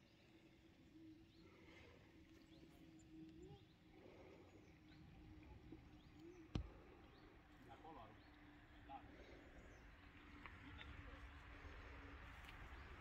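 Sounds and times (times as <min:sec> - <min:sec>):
distant bird chirps: 0:00.0 - 0:13.0.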